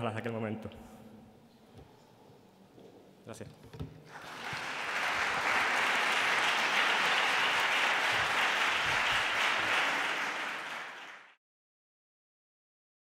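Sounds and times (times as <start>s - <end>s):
audience applause: 4.1s - 11.4s.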